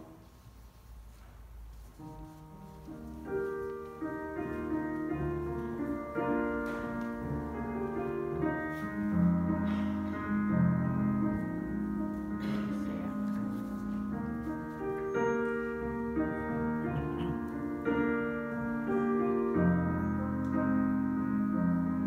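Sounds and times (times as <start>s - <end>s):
electronic organ chords: 14.2s - 22.0s.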